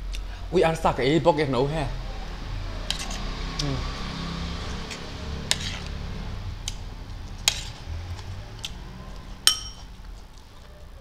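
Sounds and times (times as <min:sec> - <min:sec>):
spoon clinking on dishes: 0:09.4 - 0:09.9.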